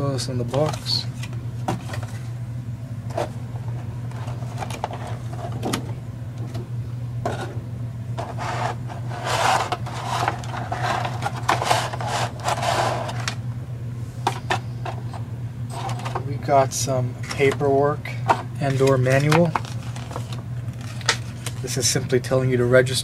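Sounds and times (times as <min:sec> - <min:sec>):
steady low hum: 0:00.0 - 0:23.0
plastic package clicks and scrapes: 0:18.6 - 0:21.7
plastic crinkling: 0:18.7 - 0:21.7.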